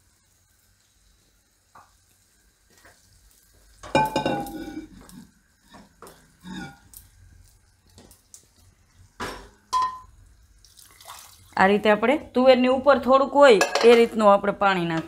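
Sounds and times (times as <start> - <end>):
spatula scraping a pan: 4.3 - 7.0.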